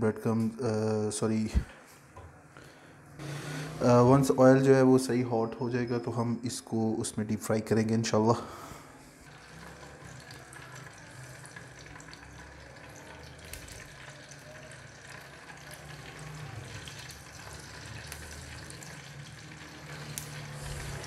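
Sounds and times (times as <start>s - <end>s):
oil sizzling and crackling: 9.2s - 21.0s.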